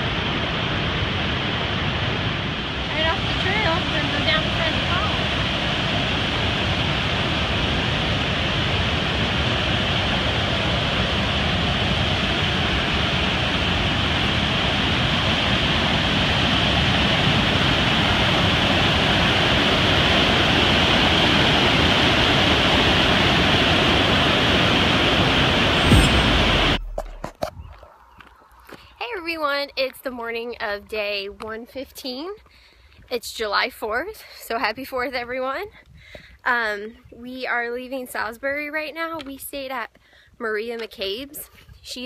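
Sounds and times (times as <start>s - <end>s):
waterfall rushing: 23.7s - 27.2s.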